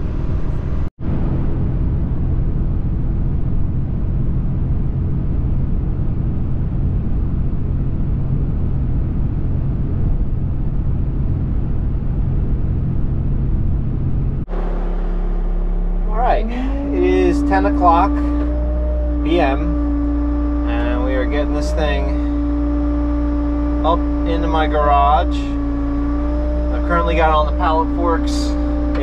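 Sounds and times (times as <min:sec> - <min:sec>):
road and engine drone in cabin: 0:00.0 - 0:29.0.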